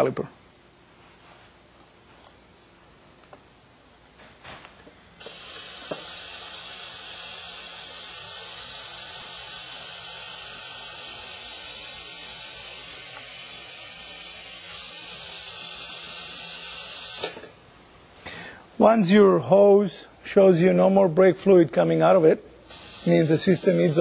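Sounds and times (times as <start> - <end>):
vacuum brake bleeder hissing: 5.2 - 17.6, 22.7 - 24.0.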